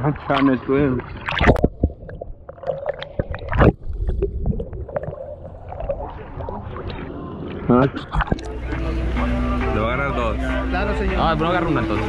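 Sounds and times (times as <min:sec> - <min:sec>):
loud splash: 0:00.0 - 0:08.4
water sloshing and gurgling: 0:00.0 - 0:09.5.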